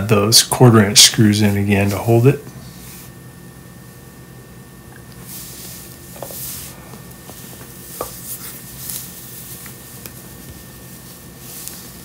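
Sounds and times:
rustling: 5.2s - 12.0s.

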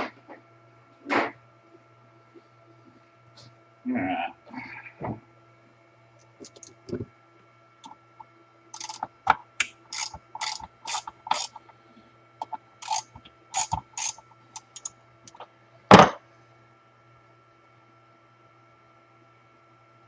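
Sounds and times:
metal parts clicking and clinking: 6.4s - 6.8s, 8.8s - 9.1s, 10.0s - 11.6s, 12.4s - 14.9s
loud knock: 15.9s - 16.2s.

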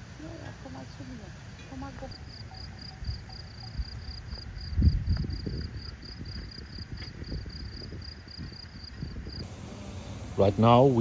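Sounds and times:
insect chirping high: 1.8s - 9.4s.

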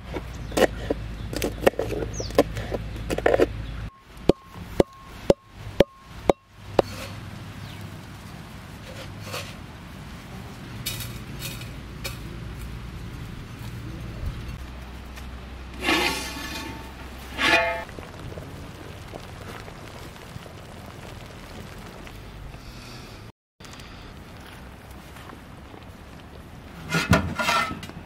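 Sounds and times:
faint scraping: 15.7s - 17.9s.

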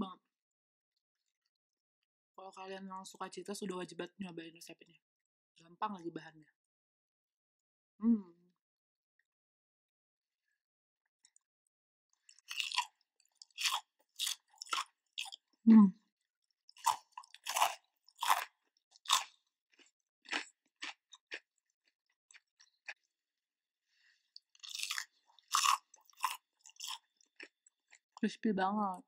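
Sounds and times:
crunchy food being chewed: 12.1s - 15.6s, 16.4s - 23.2s, 24.2s - 28.2s.

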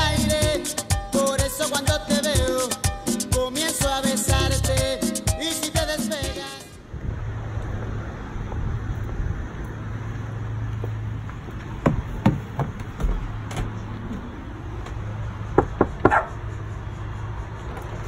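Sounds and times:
footsteps on pavement: 8.9s - 16.6s
knocks on a door: 11.8s - 13.2s.

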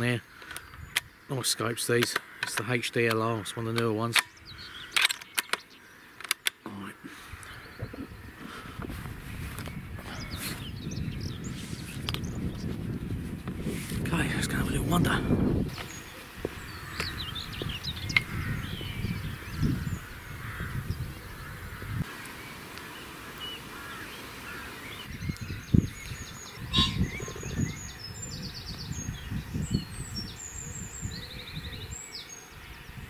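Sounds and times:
low rumbles on microphone: 7.7s - 15.8s, 25.1s - 31.9s
songbird chirping trills: 15.7s - 33.0s
geese honking: 19.9s - 25.0s, 26.6s - 27.6s.

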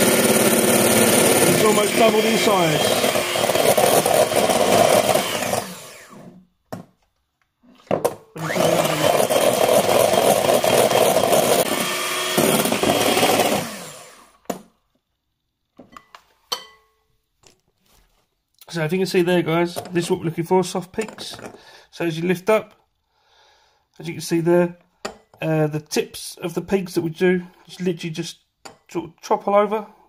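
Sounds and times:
electric mixer whisking: 0.0s - 6.4s, 8.4s - 14.5s.

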